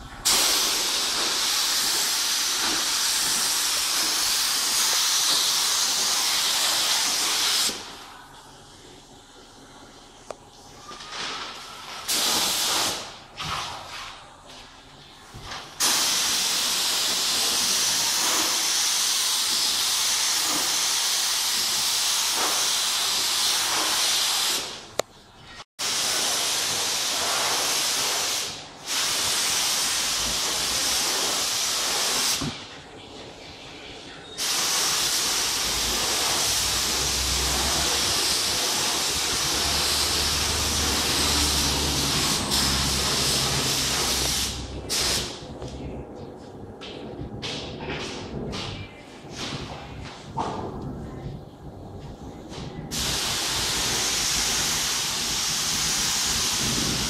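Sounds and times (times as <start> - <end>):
spray gun hissing: 0.2 - 7.8, 15.8 - 24.7, 25.8 - 32.4, 34.4 - 45.3, 52.9 - 57.0.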